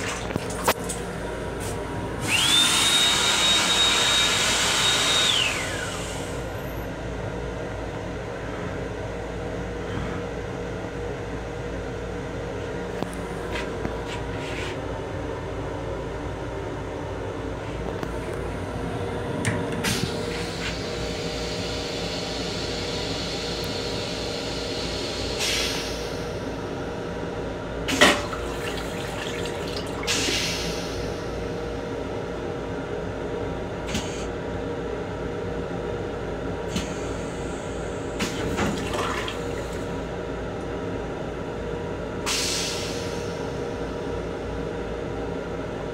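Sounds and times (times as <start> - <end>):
toilet flushing: 0.0 - 1.1, 2.2 - 6.5, 27.9 - 31.4, 36.7 - 40.0
train hum: 0.0 - 45.9.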